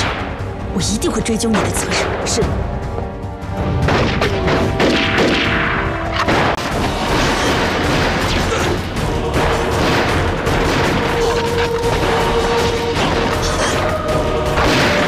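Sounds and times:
film music score: 0.0 - 15.0
rapid gunshots: 3.8 - 13.8, 14.4 - 15.0.

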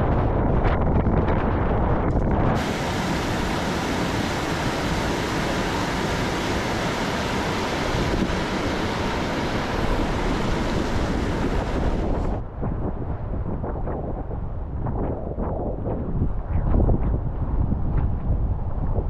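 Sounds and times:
wind buffeting microphone: 0.0 - 19.0
water rushing over rocks: 2.6 - 12.4.

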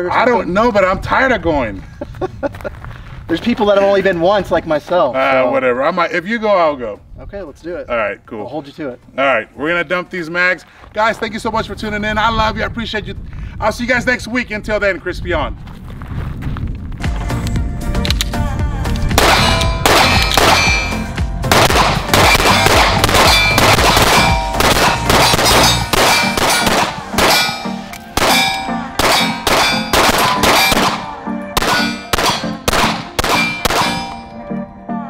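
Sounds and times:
pistol shots: 19.1 - 34.2
steel targets clanging: 22.2 - 32.6, 33.3 - 34.3.

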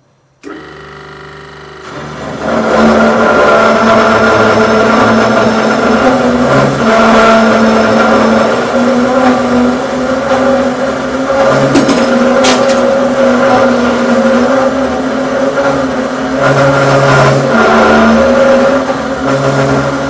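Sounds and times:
metal saw cutting steel: 2.6 - 20.0.

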